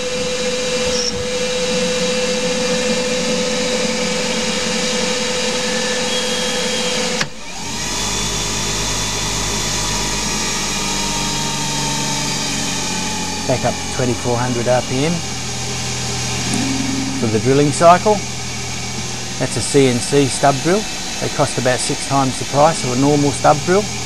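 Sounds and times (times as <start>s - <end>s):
deep steady hum: 16.1s - 20.0s
lathe motor whine: 16.3s - 19.3s.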